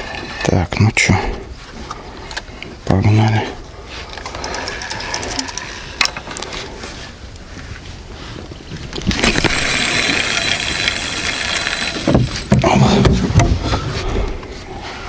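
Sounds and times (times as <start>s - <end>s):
reel whirring: 4.0s - 6.5s, 9.0s - 12.6s
fishing reel clicks: 4.2s - 6.0s, 9.2s - 12.1s.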